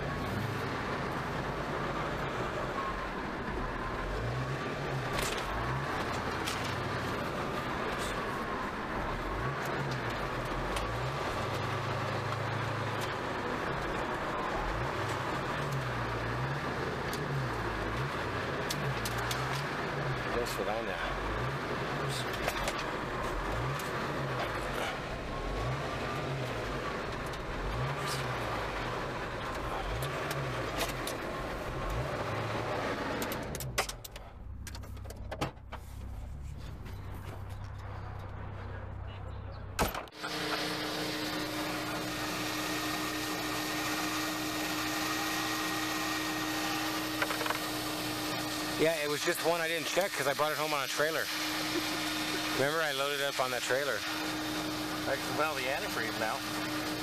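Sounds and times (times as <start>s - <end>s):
car engine from inside cabin: 0.0s - 57.0s
sharp clicks and knocks: 33.1s - 36.1s.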